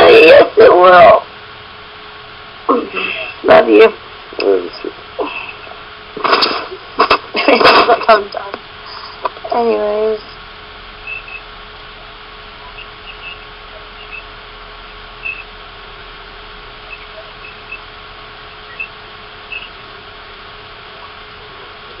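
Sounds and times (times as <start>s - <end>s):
microphone hiss and hum: 0.0s - 22.0s
faint high-pitched chirps: 11.0s - 11.5s, 12.6s - 15.5s, 16.8s - 17.9s, 18.6s - 19.8s.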